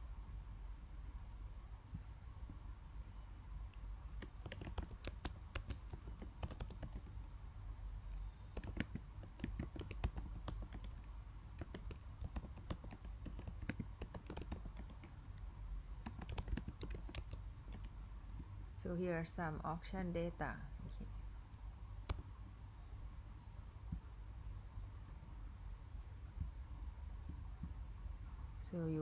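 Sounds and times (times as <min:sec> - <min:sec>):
keyboard keystroke clicks: 0:04.2 - 0:07.1, 0:08.5 - 0:15.2, 0:16.0 - 0:17.9.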